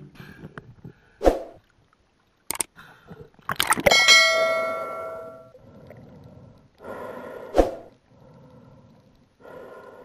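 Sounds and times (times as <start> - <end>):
bell-like metallic ding: 3.9 - 5.5
ringing sound: 3.9 - 5.5.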